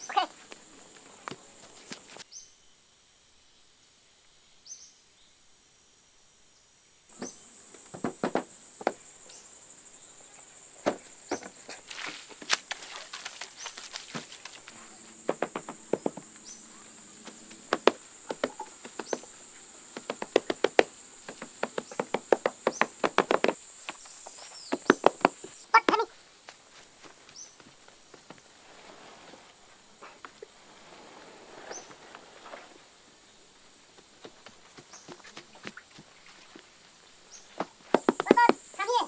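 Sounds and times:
insects droning: 0.0s - 39.0s
knocks and taps of building work: 7.2s - 9.0s, 15.2s - 16.4s, 17.7s - 19.3s, 20.0s - 24.0s, 24.7s - 25.4s, 37.6s - 38.6s.

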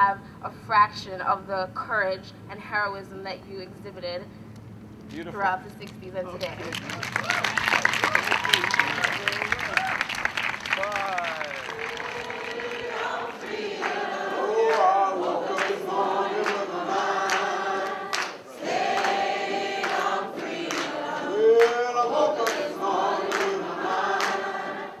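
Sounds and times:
choir singing slow song: 11.8s - 25.0s.

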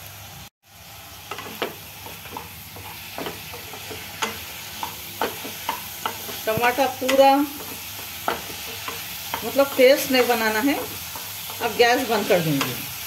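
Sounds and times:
vegetables sizzling in oil: 0.0s - 13.0s
spatula scraping a pan: 1.4s - 13.0s.

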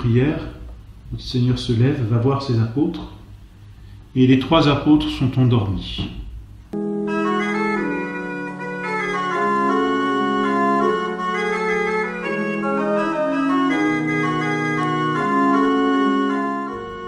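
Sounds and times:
organ playing slow chords: 6.2s - 17.0s.

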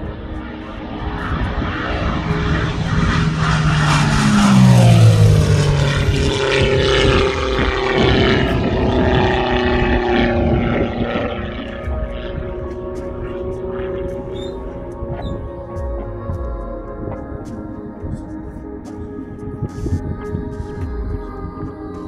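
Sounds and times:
model airplane engine flying past: 0.0s - 15.8s.

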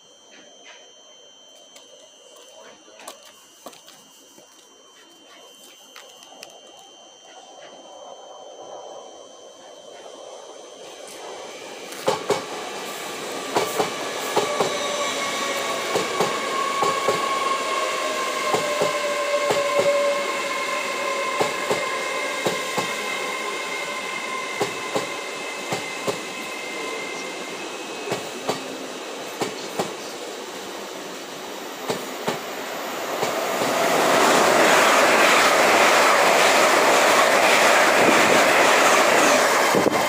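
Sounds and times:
high whine: 0.0s - 40.0s
train rumble: 7.2s - 40.0s
train wheels clicking on rail joints: 11.9s - 17.8s, 18.4s - 26.6s, 27.9s - 30.3s, 31.8s - 40.0s.

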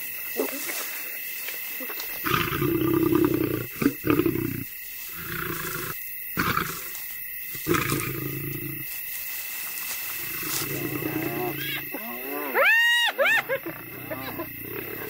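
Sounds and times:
big cat growling: 2.2s - 8.9s, 10.2s - 12.6s, 13.4s - 15.0s.

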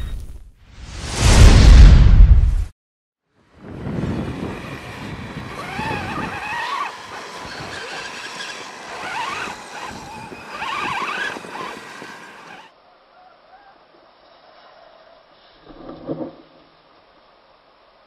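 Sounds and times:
electric toy truck motors whining: 4.0s - 12.7s.

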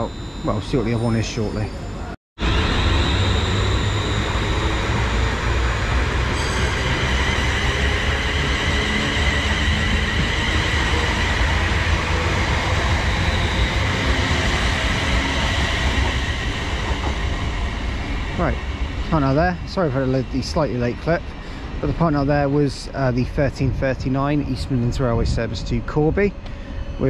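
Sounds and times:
electric motor whine: 2.4s - 18.8s
train wheels rumbling on rail: 2.4s - 27.0s.

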